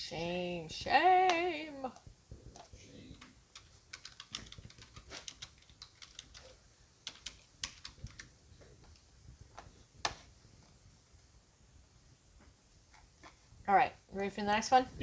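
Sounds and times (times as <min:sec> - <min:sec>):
keyboard typing: 0:02.6 - 0:08.4.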